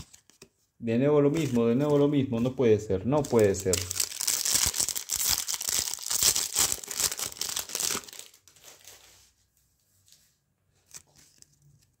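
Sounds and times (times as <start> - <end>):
wrapper crinkling: 3.2 - 9.2.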